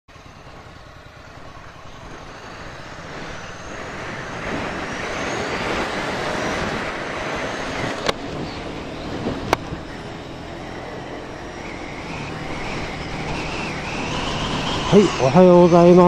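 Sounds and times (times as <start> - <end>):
motorcycle engine accelerating: 0.1 - 16.0
wind rushing on microphone: 0.1 - 16.0.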